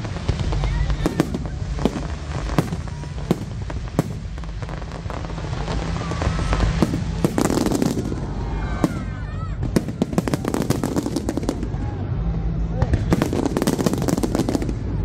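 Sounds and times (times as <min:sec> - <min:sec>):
continuous low rumble: 0:00.0 - 0:15.0.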